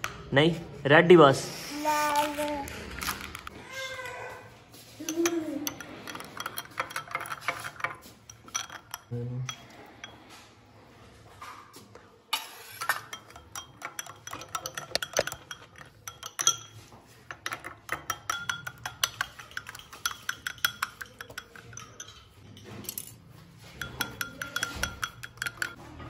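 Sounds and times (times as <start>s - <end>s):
teaspoon clinking against glass: 5.0s - 10.2s, 12.4s - 25.8s.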